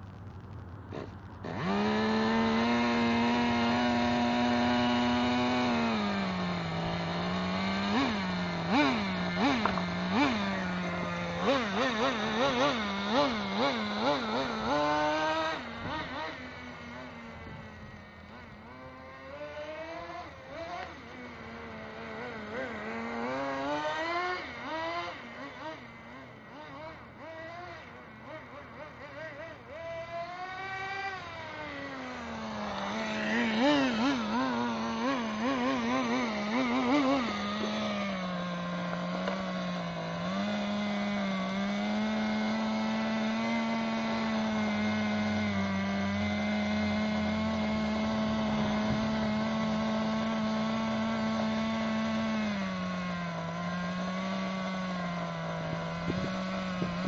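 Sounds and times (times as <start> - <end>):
small nitro engine buzzing: 0.7 - 57.0.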